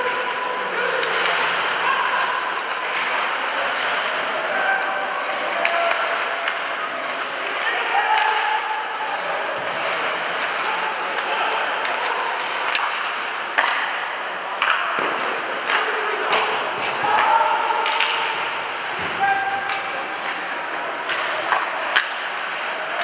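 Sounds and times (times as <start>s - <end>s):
people shouting: 0.0s - 3.5s, 4.1s - 6.5s, 7.5s - 13.1s, 15.8s - 20.3s
crowd noise: 0.0s - 23.0s
hockey sticks and puck clacking: 0.0s - 23.0s
skates scraping ice: 0.0s - 23.0s.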